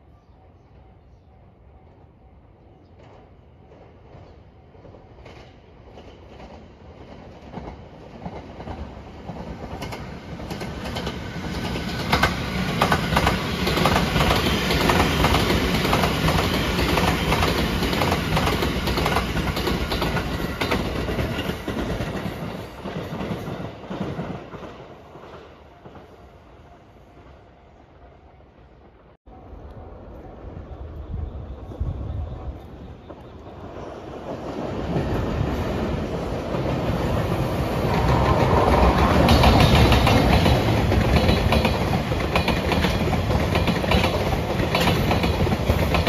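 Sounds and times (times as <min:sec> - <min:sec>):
train passing: 0:00.0 - 0:46.0.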